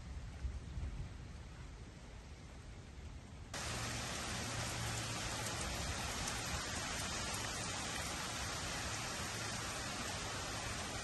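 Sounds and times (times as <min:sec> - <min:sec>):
heavy rain hissing: 0:03.6 - 0:11.0.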